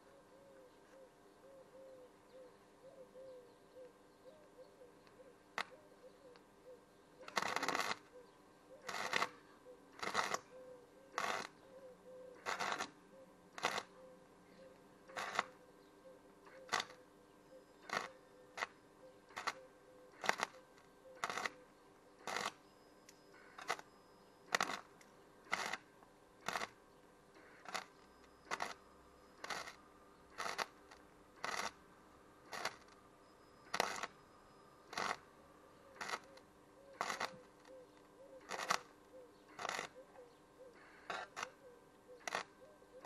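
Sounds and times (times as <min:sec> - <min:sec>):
faint steady hum: 0:00.0 - 0:43.0
welder arc firing in bursts: 0:07.3 - 0:08.0, 0:08.8 - 0:09.4, 0:10.0 - 0:10.4, 0:11.2 - 0:11.6, 0:12.4 - 0:13.0, 0:13.6 - 0:13.9, 0:15.1 - 0:15.6, 0:16.6 - 0:17.0, 0:17.9 - 0:19.6, 0:20.2 - 0:20.6, 0:21.2 - 0:21.6, 0:22.2 - 0:22.6, 0:24.5 - 0:24.9, 0:25.5 - 0:25.8, 0:26.4 - 0:26.8, 0:27.4 - 0:28.8, 0:29.4 - 0:31.8, 0:33.7 - 0:34.1, 0:34.9 - 0:35.2, 0:36.0 - 0:36.3, 0:37.0 - 0:37.4, 0:38.5 - 0:38.9, 0:42.3 - 0:42.5.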